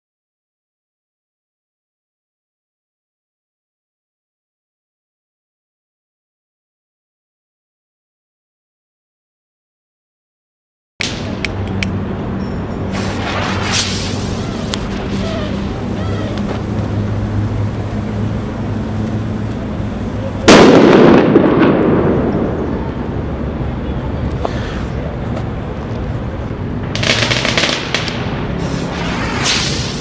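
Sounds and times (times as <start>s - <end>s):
soft noisy bursts: 11.0s - 30.0s
firecracker bang: 12.9s - 16.6s, 20.5s - 22.8s, 27.0s - 30.0s.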